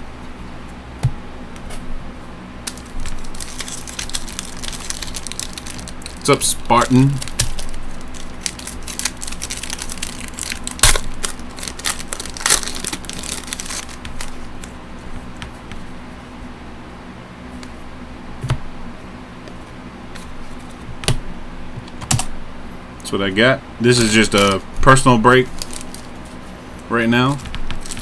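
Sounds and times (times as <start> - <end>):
foil wrapper crinkling and tearing: 2.6 - 14.8, 23.9 - 26.6, 27.3 - 28.0.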